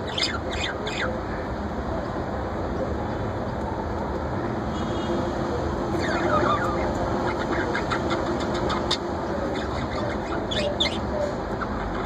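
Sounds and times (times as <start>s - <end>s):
budgerigars chirping: 0.0s - 1.1s, 6.0s - 12.0s
steady background noise: 0.0s - 12.0s.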